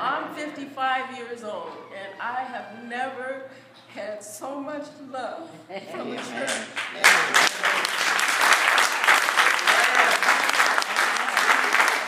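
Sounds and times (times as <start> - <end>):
congregation applauding: 6.2 - 12.0.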